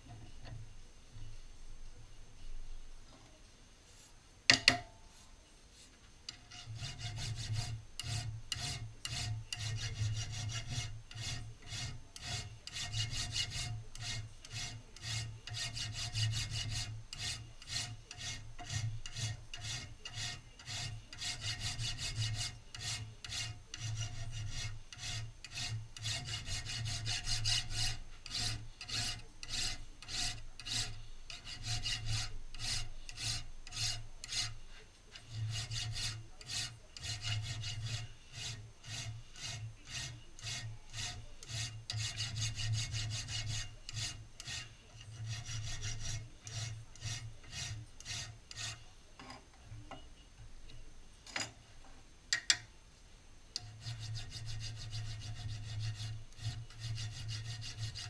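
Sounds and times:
file rasping on metal: 6.3s - 49.4s, 53.6s - 58.0s.

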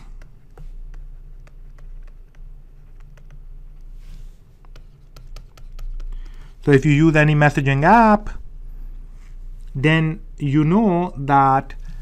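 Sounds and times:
stylus tapping on tablet screen: 4.6s - 6.5s.

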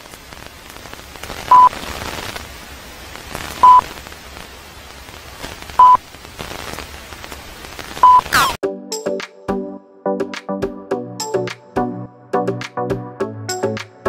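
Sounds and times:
crackly film hiss: 0.0s - 8.6s.

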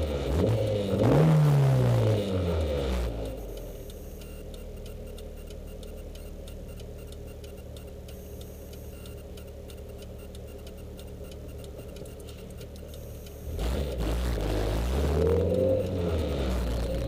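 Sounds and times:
engine revving up: 0.0s - 3.4s, 13.4s - 17.0s
fast light engine ticking: 0.0s - 17.0s.

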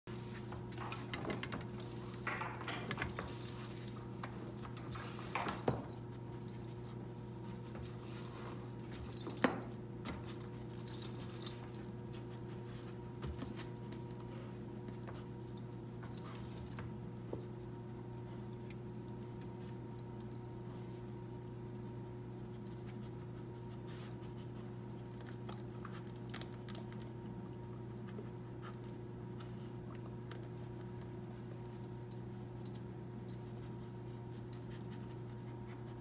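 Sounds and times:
small metal parts jangling: 1.0s - 6.0s, 9.1s - 9.8s, 10.5s - 11.9s.

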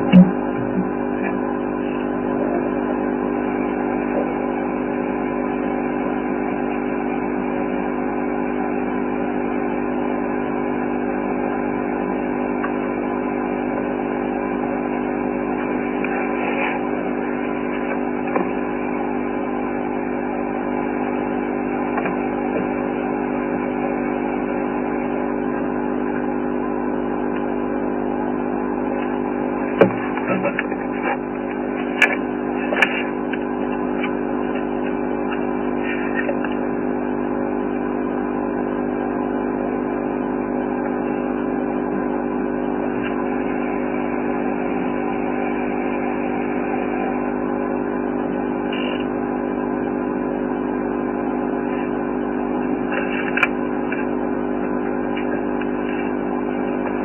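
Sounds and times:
mechanical hum: 0.0s - 57.0s.

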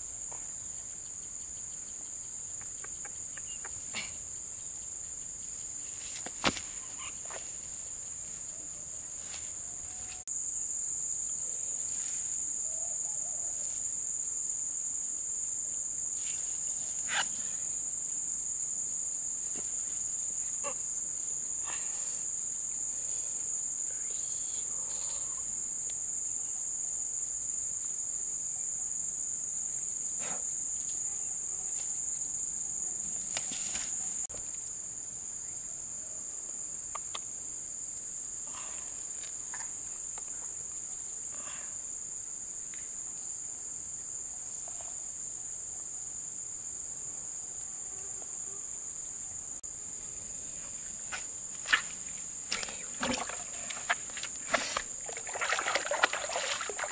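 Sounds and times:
insects droning: 0.0s - 56.9s.

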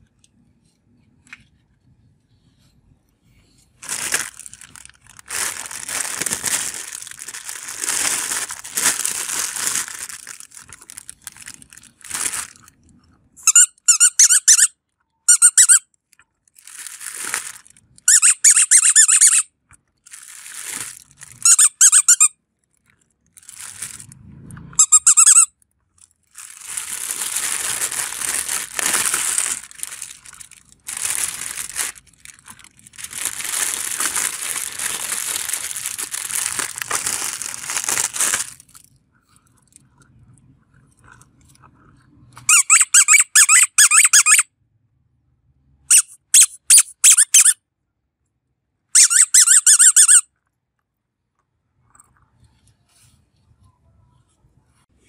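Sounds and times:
rubber spiky balls squeaking: 3.8s - 12.5s, 13.4s - 15.9s, 16.6s - 19.5s, 20.1s - 22.3s, 24.8s - 25.6s, 26.2s - 38.8s, 42.4s - 44.4s, 45.9s - 47.6s, 49.0s - 50.3s
plastic bag crinkling and rustling: 3.8s - 12.8s, 16.4s - 19.3s, 20.0s - 24.2s, 26.0s - 39.9s.

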